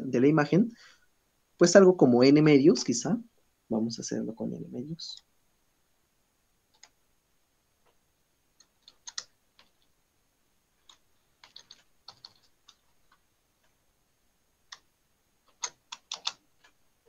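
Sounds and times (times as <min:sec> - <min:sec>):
computer keyboard typing: 0:06.7 - 0:07.0, 0:08.6 - 0:09.9, 0:10.8 - 0:13.2, 0:14.7 - 0:16.8.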